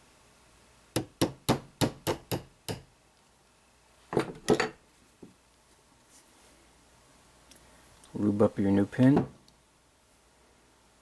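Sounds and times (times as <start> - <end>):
hammer tapping steel punch: 1.0 - 2.9.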